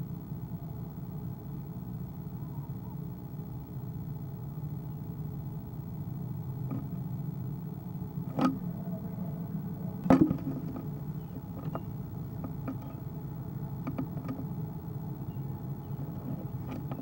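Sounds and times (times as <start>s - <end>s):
steady low hum: 0.0s - 17.0s
knocks on wooden nest box: 10.0s - 10.9s.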